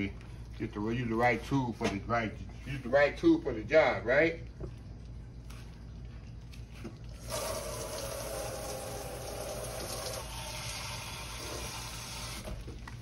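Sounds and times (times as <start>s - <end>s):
liquid pouring: 4.2s - 13.0s.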